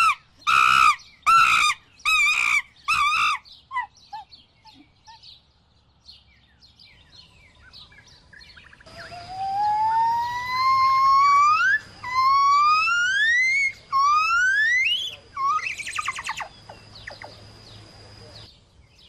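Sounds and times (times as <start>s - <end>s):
animal whistled calls: 8.9s - 17.3s.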